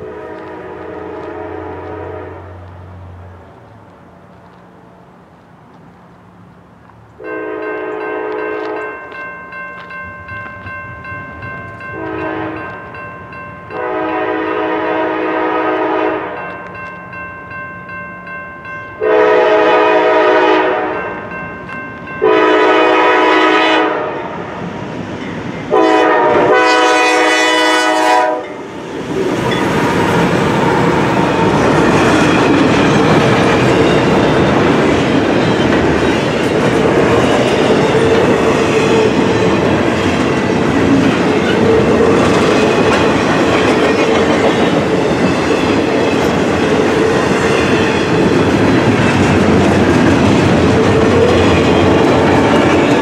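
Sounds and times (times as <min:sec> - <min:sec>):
locomotive air horn blasts: 0:00.0 - 0:02.6, 0:07.2 - 0:09.0, 0:12.0 - 0:12.7, 0:13.7 - 0:16.4, 0:19.0 - 0:21.2, 0:22.2 - 0:24.4, 0:25.7 - 0:28.6
train wheels on rails: 0:00.0 - 0:53.0
crossing bell ringing: 0:07.2 - 0:23.4, 0:25.2 - 0:28.8, 0:31.7 - 0:53.0.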